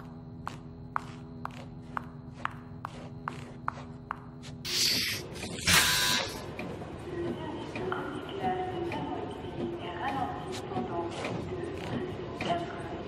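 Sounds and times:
hard-soled footsteps on hard floor: 0.0s - 4.6s
steady low hum: 0.0s - 13.0s.

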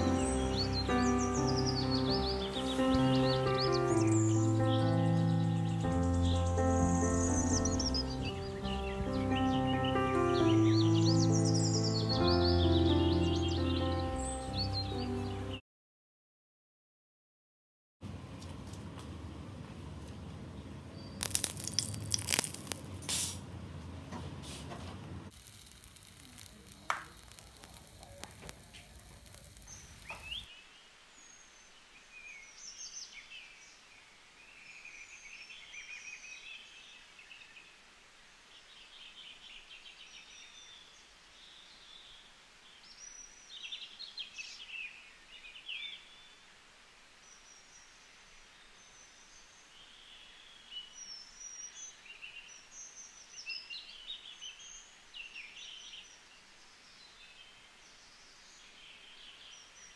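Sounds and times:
low background hiss: 0.0s - 15.6s, 18.0s - 59.9s
small birds chirping: 0.0s - 15.6s, 20.0s - 23.4s, 25.3s - 46.5s.

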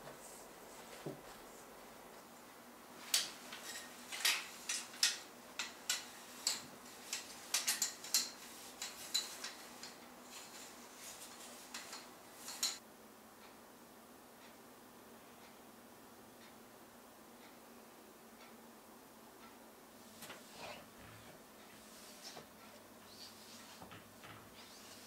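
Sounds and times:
hanger clicks and taps: 3.1s - 10.0s.

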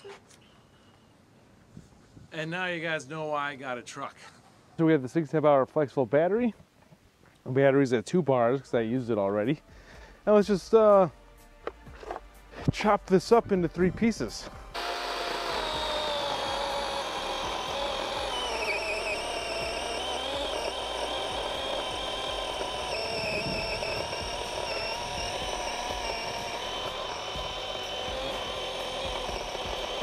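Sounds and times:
chainsaw motor whine: 14.5s - 30.0s.

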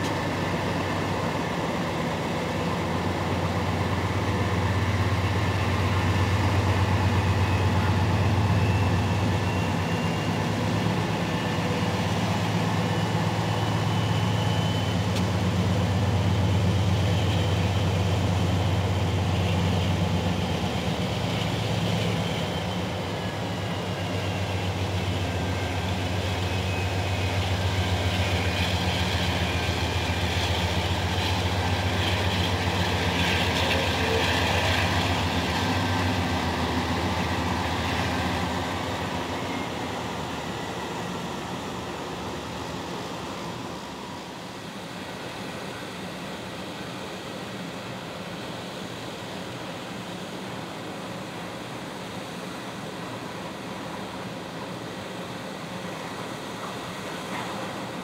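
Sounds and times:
train wheels rumbling on rails: 0.0s - 58.0s
faint high squeal: 4.4s - 41.5s.

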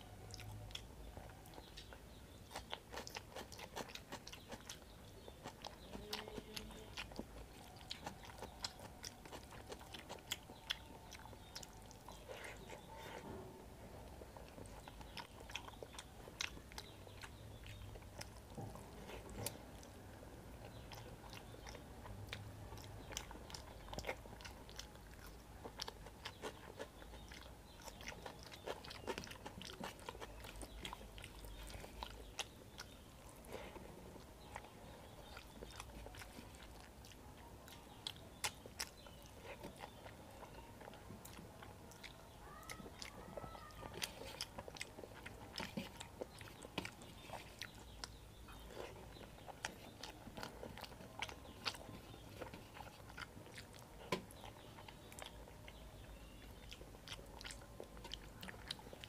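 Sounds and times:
wet chewing: 0.0s - 59.0s.

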